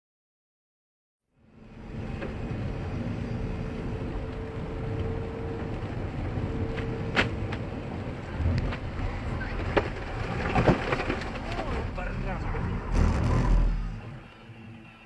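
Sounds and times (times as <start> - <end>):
car engine and road rumble: 1.3 - 15.0.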